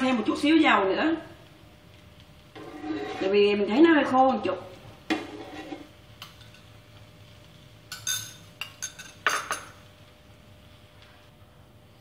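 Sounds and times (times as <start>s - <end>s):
metal spoon clinking ceramic bowl: 7.9s - 9.8s.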